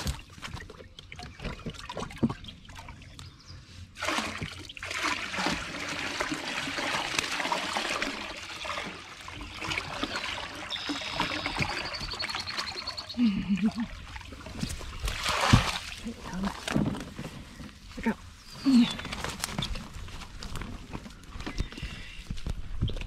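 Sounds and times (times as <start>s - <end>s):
water pouring into a pond: 3.9s - 16.7s.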